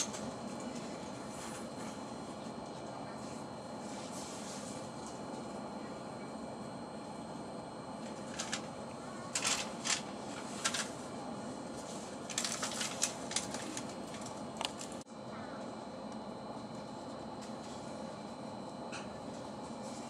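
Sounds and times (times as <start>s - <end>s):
train carriage running noise: 0.0s - 15.0s.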